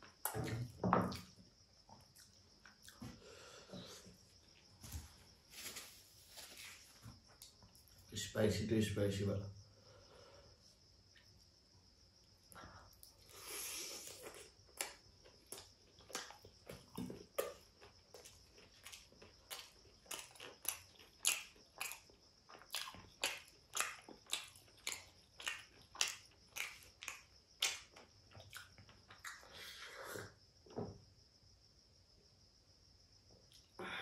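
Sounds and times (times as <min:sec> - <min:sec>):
chewing with mouth smacks: 0:14.0 - 0:29.6.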